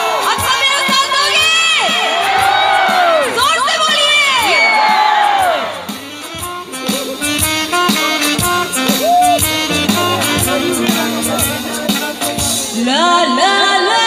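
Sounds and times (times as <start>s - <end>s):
instrumental music over loudspeakers: 5.0s - 13.4s.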